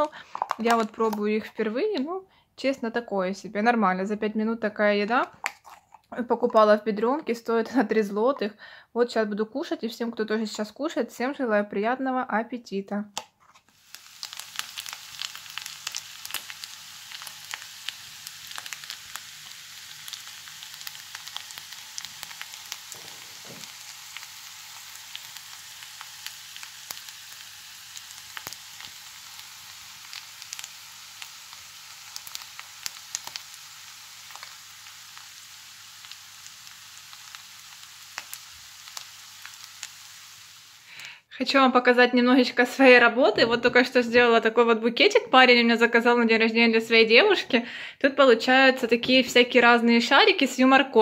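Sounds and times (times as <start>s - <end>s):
food sizzling in a frying pan: 0.0s - 2.0s, 13.7s - 41.1s.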